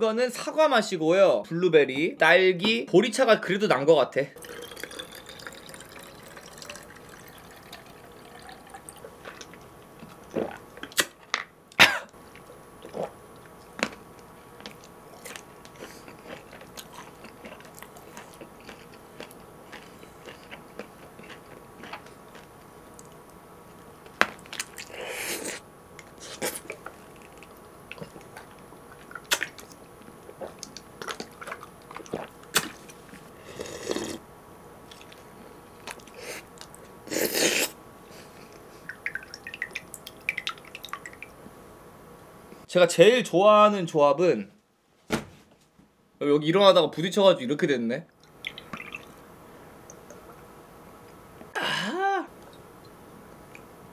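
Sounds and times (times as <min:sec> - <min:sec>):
biting and chewing: 0:14.6 - 0:23.3.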